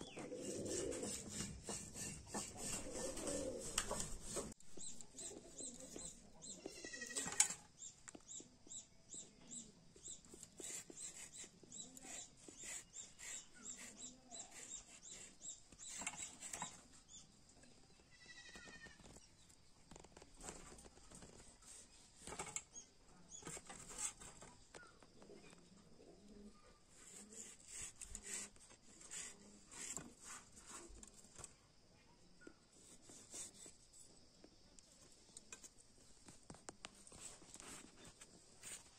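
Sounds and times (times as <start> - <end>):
blade scraping and cutting mango: 0.1 - 4.6, 10.4 - 16.8, 23.4 - 24.5, 27.0 - 31.2, 32.8 - 33.8.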